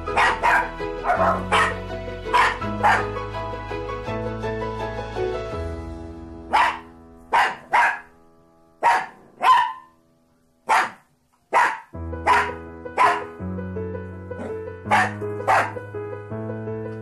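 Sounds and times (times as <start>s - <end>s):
background music: 0.0s - 17.0s
small dog barking: 0.1s - 3.1s, 6.5s - 8.1s, 8.8s - 10.0s, 10.7s - 13.3s, 14.4s - 15.8s.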